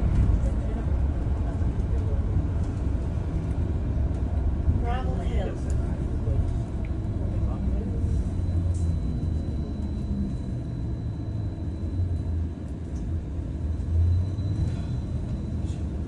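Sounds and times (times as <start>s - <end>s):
bus road rumble: 0.0s - 16.0s
faint high whine: 8.1s - 16.0s.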